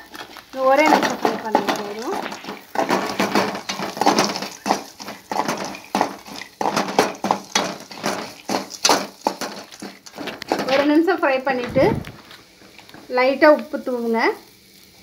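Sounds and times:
metal ladle clanking in pan: 0.0 - 10.9
peanuts frying in oil: 0.0 - 15.0.

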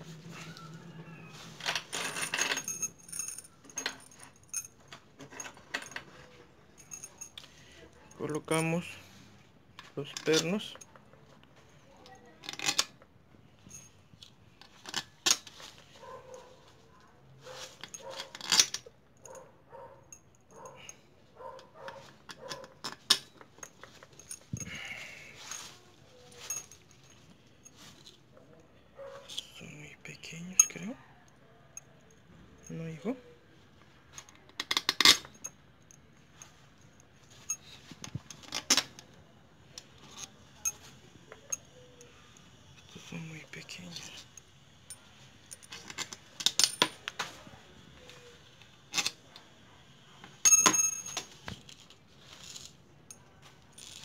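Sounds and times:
metal parts clinking: 1.6 - 8.9, 9.8 - 11.0, 12.1 - 13.0, 17.6 - 19.4, 21.8 - 28.2, 30.4 - 30.9, 34.1 - 36.6, 43.6 - 47.1, 50.4 - 54.0
dog barking faintly: 16.0 - 18.3, 19.2 - 22.8, 28.8 - 29.4.

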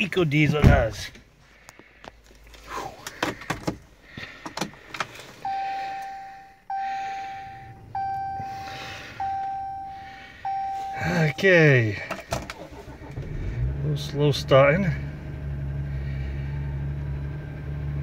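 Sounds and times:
dashboard warning chime: 5.4 - 12.2.

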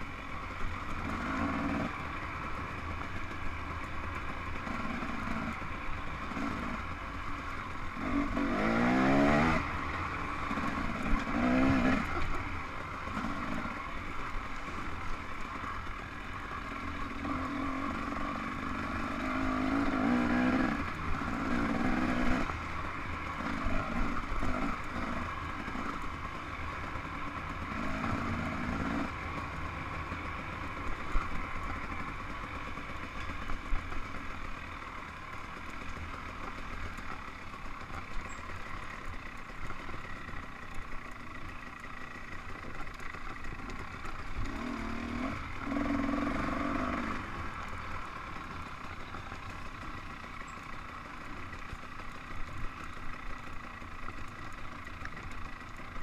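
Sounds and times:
dirt bike engine revving: 0.7 - 55.7
bike knocking and rattling: 18.0 - 56.0.

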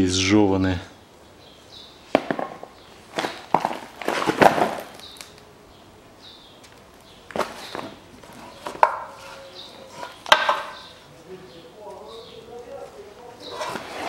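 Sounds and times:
steel parts knocking on cardboard: 10.3 - 10.8.

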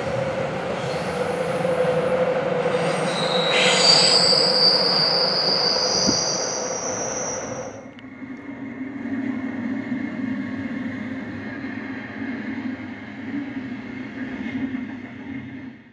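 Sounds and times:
train wheels rumbling on rails: 0.0 - 15.9
wheel flanges squealing: 2.6 - 7.9.

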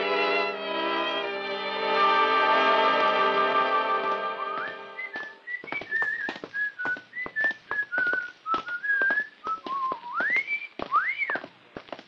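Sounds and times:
person whistling a tune: 4.5 - 11.5.

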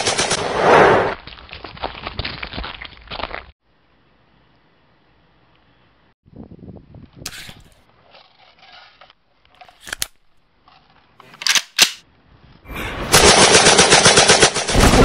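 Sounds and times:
metallic clicks of rifle handling: 9.6 - 10.3, 11.2 - 12.0
rapid automatic rifle fire: 13.1 - 15.0.

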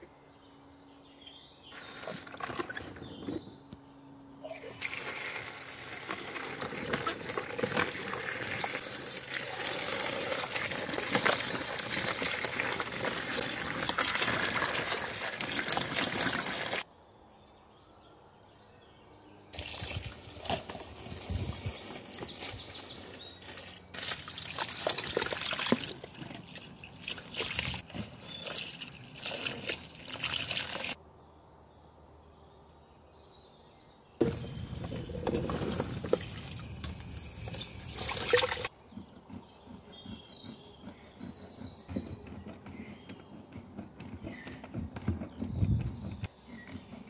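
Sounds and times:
water splashing into a metal colander: 4.7 - 16.8, 23.4 - 31.0, 34.2 - 38.7.

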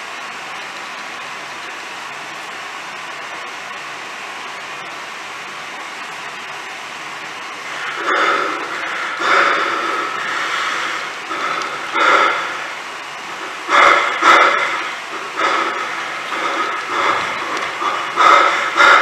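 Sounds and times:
rushing static-like noise: 7.2 - 19.0.

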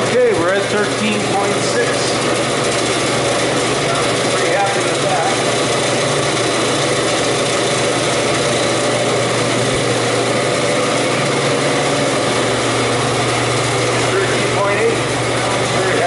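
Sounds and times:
cooler fans rushing air: 0.0 - 16.0.

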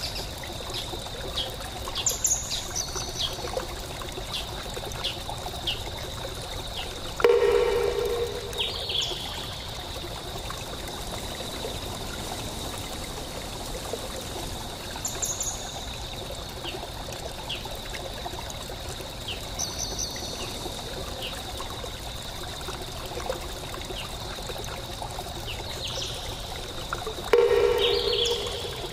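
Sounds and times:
water trickling: 0.0 - 28.9
steady high tone: 7.2 - 9.3, 27.3 - 28.9
high bird-like chirps: 27.4 - 28.9.

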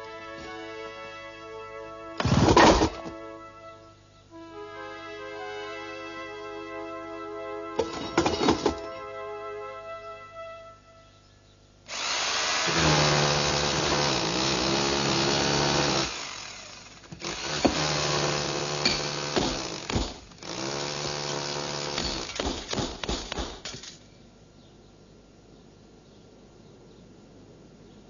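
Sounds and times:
power drill boring into stone: 11.9 - 22.7.

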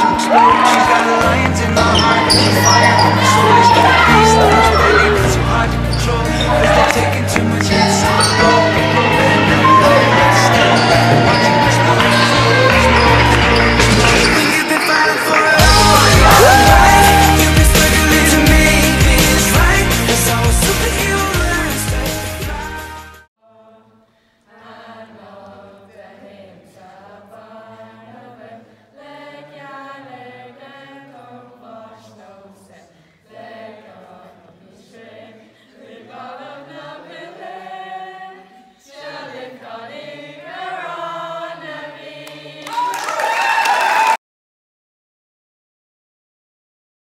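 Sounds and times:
girls singing together: 0.0 - 13.7, 23.4 - 43.1.

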